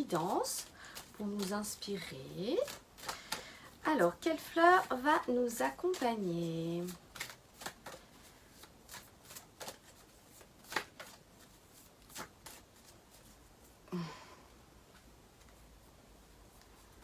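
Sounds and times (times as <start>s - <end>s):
cards being shuffled: 0.0s - 13.4s.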